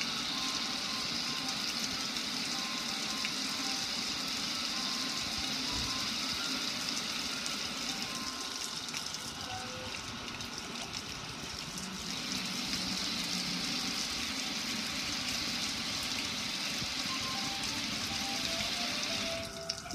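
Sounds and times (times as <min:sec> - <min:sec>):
water splashing onto grill: 0:04.5 - 0:19.9.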